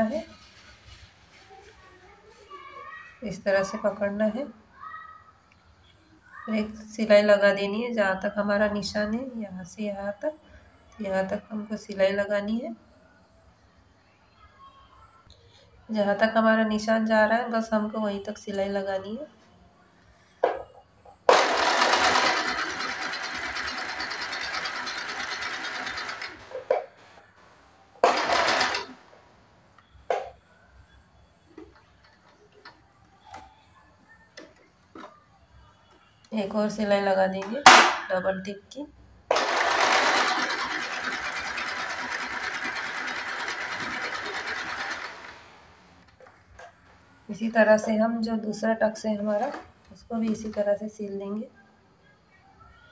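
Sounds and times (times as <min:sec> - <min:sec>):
sewing machine stitching: 0:21.3 - 0:26.7, 0:28.0 - 0:29.0, 0:39.3 - 0:45.6.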